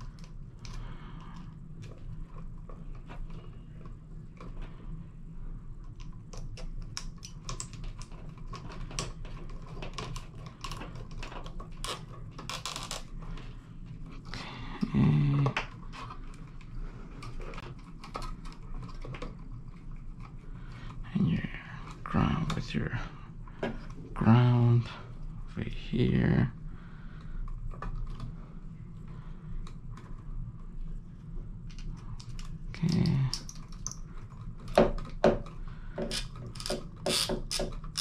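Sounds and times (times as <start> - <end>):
steady low hum: 0.0 - 38.0
wire nuts twisting onto wires: 5.9 - 13.2, 31.7 - 38.0.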